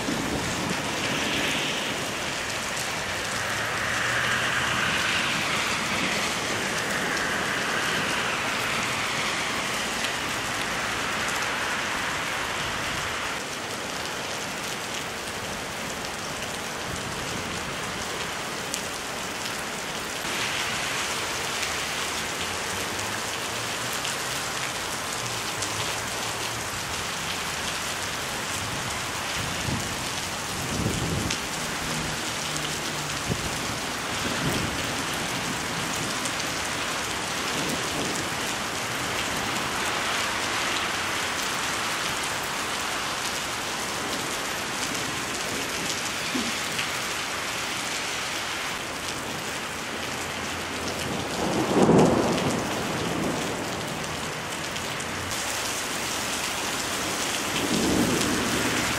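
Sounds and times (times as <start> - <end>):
heavy rain pouring: 0.0 - 58.9
low thunder rumble: 51.4 - 54.0, 57.5 - 58.9.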